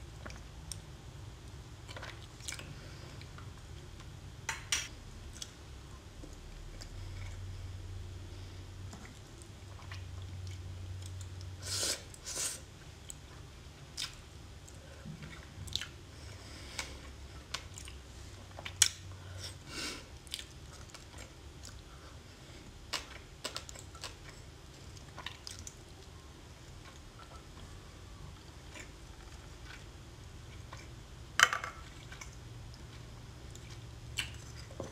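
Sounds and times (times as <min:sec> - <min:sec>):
wet chewing: 0:22.9 - 0:27.8.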